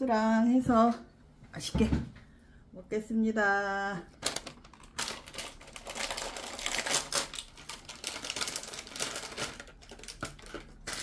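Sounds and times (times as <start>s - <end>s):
plastic packaging crinkling: 4.1s - 11.0s.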